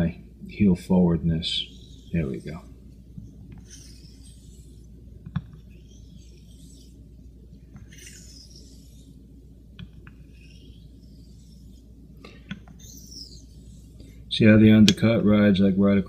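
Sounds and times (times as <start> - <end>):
razor scraping on whetstone: 1.4 - 2.7, 3.3 - 7.1, 7.7 - 9.2, 9.8 - 11.8, 12.4 - 14.2.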